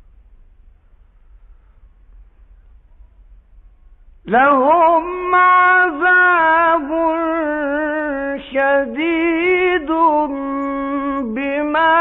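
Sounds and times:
man chanting melodically: 4.3 - 12.0.

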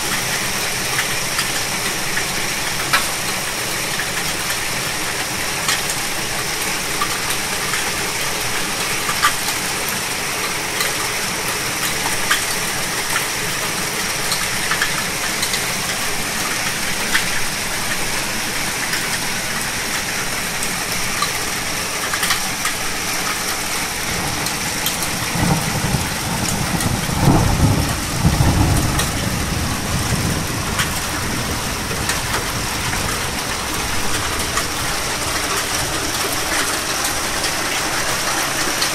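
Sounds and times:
heavy rain downpour: 0.0 - 38.9
hailstones striking: 23.4 - 38.9.

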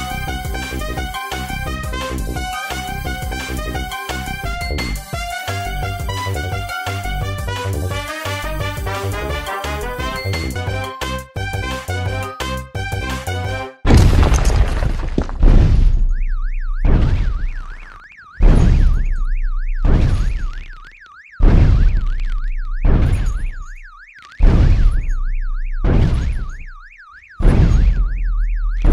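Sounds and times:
warbling electronic alarm siren: 0.0 - 13.6, 16.0 - 28.9
heavy booming hits: 13.9 - 16.1, 16.7 - 17.5, 18.4 - 20.5, 21.4 - 22.1, 22.8 - 23.6, 24.4 - 26.6, 27.4 - 28.9.

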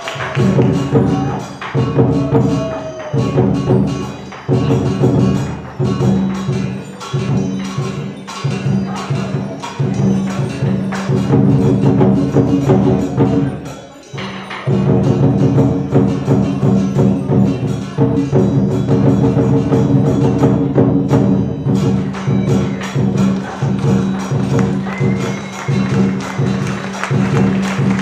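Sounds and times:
cymbals crashing: 0.0 - 28.0
drum beating fast: 0.0 - 28.0.

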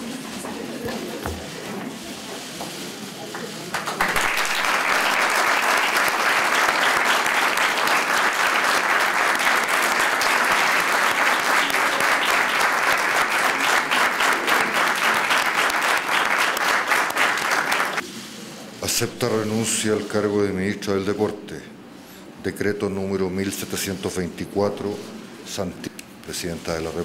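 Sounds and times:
crowd applauding: 3.7 - 18.0.

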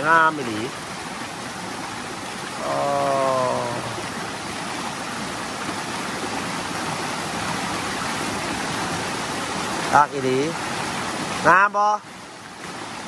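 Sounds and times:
waterfall rushing over rocks: 0.0 - 13.0
drawn-out voice: 2.6 - 4.0.

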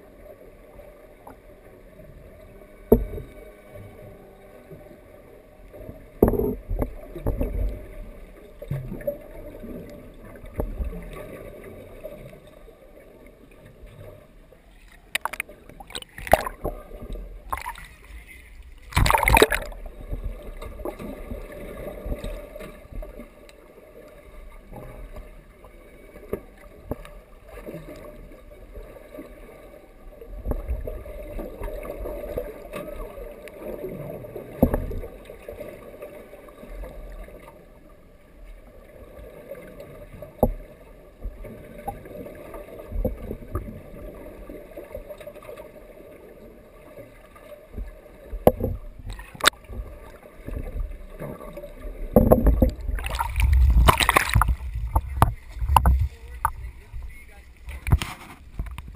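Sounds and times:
muffled underwater drone: 0.0 - 58.9
dull underwater knocks: 6.2 - 7.8, 15.1 - 16.8, 18.9 - 21.0, 47.8 - 49.9, 50.5 - 58.9.

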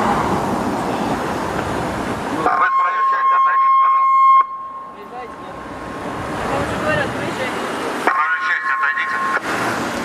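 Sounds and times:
street traffic: 0.0 - 10.0
voice over a loudspeaker: 2.4 - 4.1, 6.6 - 9.4.

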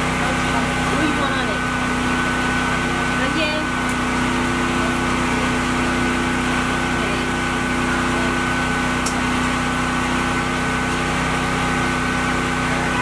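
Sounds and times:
machine motor humming: 0.0 - 13.0
high whine: 11.8 - 13.0.

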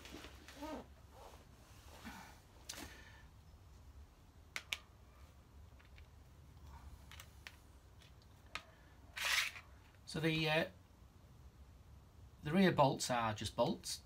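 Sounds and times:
faint clicks and taps of parts: 4.5 - 4.9, 5.6 - 8.8.

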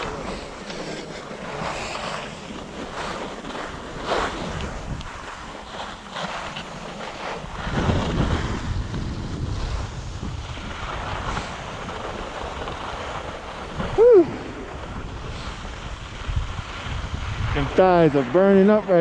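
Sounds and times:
skis sliding over snow: 0.0 - 19.0
wind buffeting microphone: 0.0 - 19.0.

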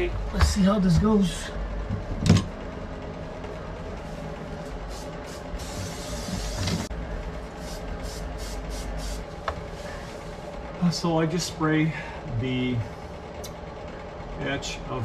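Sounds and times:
low hum: 0.0 - 15.0
aerosol spray hissing: 4.8 - 6.9, 7.5 - 10.1.

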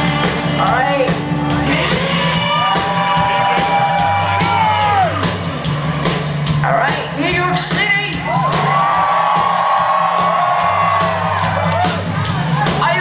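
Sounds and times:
bass line: 0.0 - 13.0
drum beats: 0.0 - 13.0.

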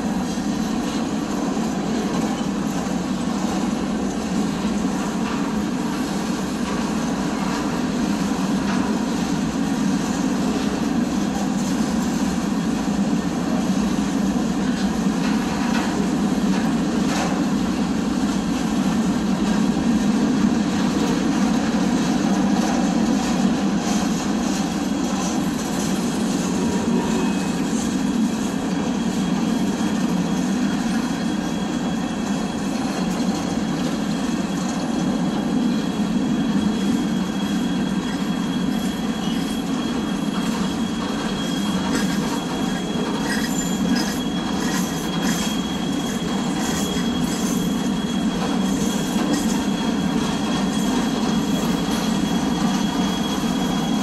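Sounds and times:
train wheels rolling on rails: 0.0 - 54.0
high wheel squeal: 24.7 - 54.0.

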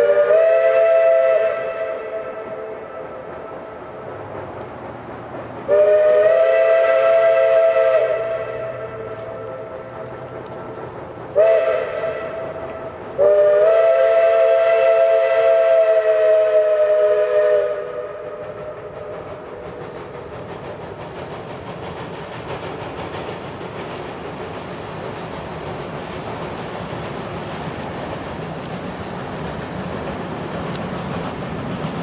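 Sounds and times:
steam locomotive whistle: 0.0 - 3.8, 5.7 - 20.3
locomotive rushing rumble: 0.0 - 32.0.

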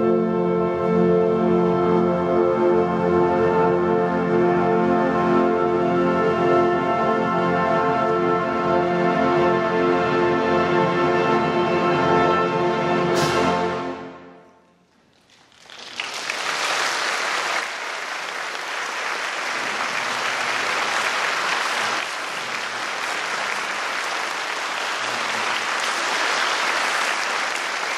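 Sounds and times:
audience applause: 15.2 - 27.9.

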